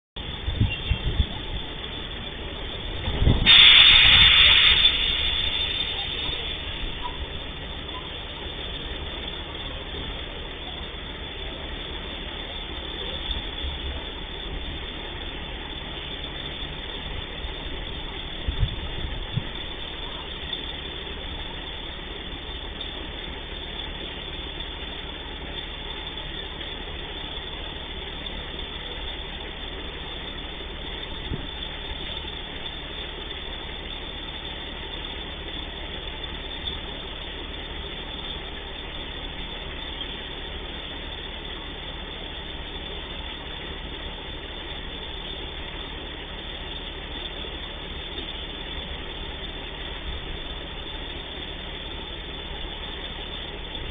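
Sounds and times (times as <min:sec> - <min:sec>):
diesel engine idling: 0:00.2 - 0:53.9.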